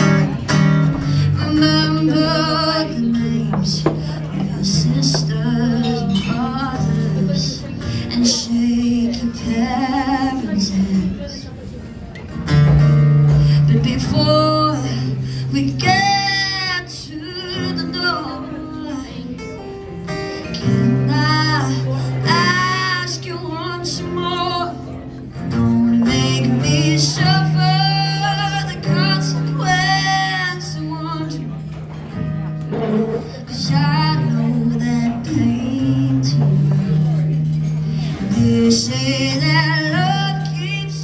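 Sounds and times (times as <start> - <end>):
acoustic guitar: 0.0 - 41.0
woman singing: 1.3 - 11.3, 13.6 - 19.4, 20.6 - 24.9.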